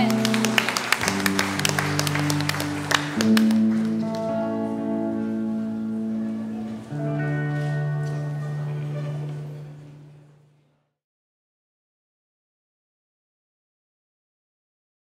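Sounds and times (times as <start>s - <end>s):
people clapping: 0.0s - 4.6s
instrumental music with held chords: 0.0s - 10.4s.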